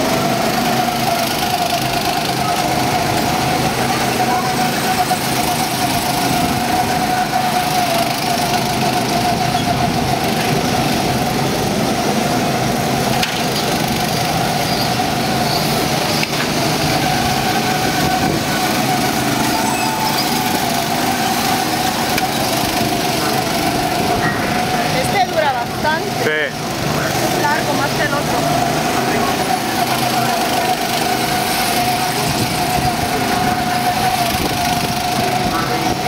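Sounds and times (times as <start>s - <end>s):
go-kart engines droning: 0.0s - 36.0s
held tone: 19.2s - 21.2s.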